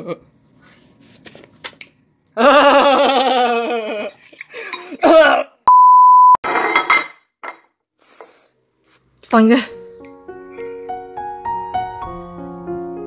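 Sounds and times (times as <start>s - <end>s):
steady beep: 5.7s - 6.4s.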